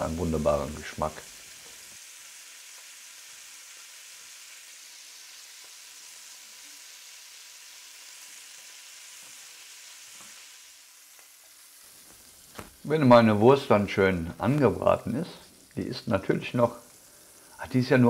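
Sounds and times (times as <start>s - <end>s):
sausages sizzling in oil: 0.0s - 18.0s.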